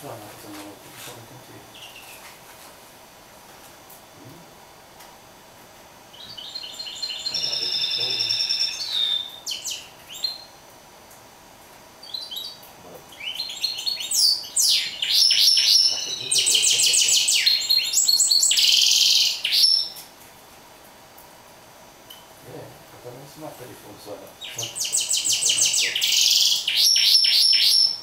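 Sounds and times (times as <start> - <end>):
bird singing chirps and trills: 1.5 - 2.2, 6.1 - 10.6, 12.0 - 20.0, 24.4 - 28.0
harsh buzzy bird phrase: 6.4 - 9.7, 14.4 - 19.7, 22.4 - 27.7.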